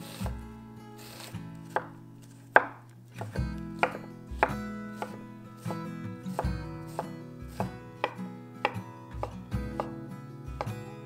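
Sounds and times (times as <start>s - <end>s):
soft background music: 0.0s - 11.0s
knife chopping on wooden board: 0.1s - 0.4s, 1.6s - 10.0s.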